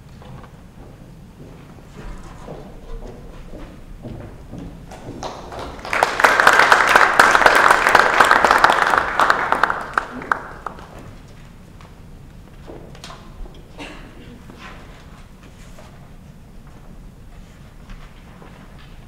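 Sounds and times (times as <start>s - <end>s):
footsteps on stage floor: 0.0s - 6.1s, 10.4s - 19.0s
audience applause: 4.9s - 11.0s.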